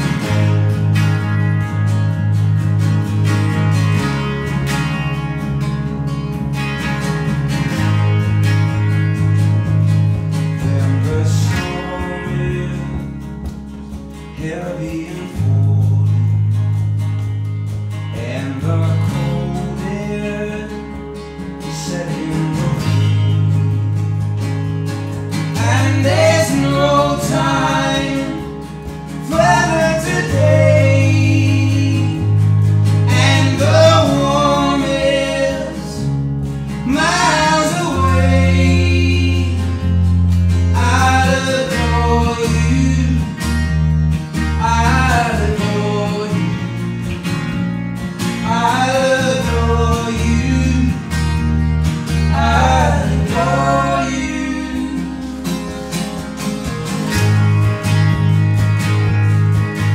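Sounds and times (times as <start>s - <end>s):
man singing: 0.0s - 1.1s, 10.6s - 13.4s, 14.2s - 16.4s, 18.1s - 23.2s, 25.5s - 28.6s, 29.2s - 32.4s, 33.0s - 36.2s, 36.8s - 40.0s, 40.7s - 43.7s, 44.4s - 46.9s, 48.4s - 51.3s, 52.2s - 55.6s
acoustic guitar: 0.0s - 59.9s
electric bass: 0.0s - 59.9s
electric guitar: 0.0s - 59.9s.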